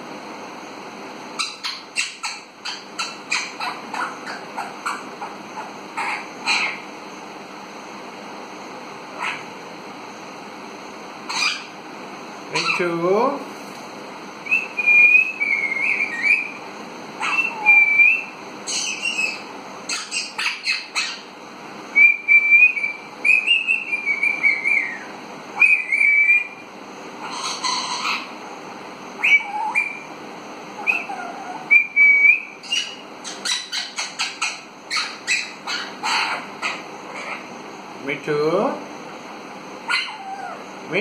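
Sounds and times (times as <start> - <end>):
harsh parakeet calls: 1.3 - 7.3, 9.0 - 9.6, 11.2 - 11.9, 12.5 - 13.0, 14.4 - 21.4, 22.1 - 37.9, 39.8 - 40.7
parakeet whistling: 1.4 - 6.8, 11.3 - 11.7, 14.4 - 16.6, 17.2 - 21.3, 21.9 - 26.6, 27.2 - 28.3, 29.2 - 30.1, 30.8 - 37.4.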